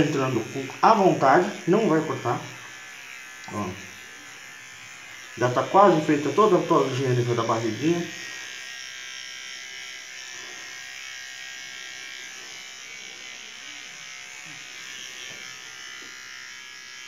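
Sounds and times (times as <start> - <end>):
electric trimmer buzzing: 0.0 - 17.0.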